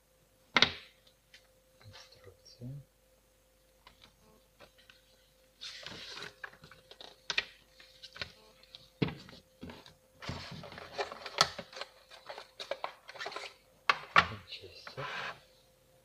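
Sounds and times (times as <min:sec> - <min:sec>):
packaging rustling: 0:05.6 - 0:13.6.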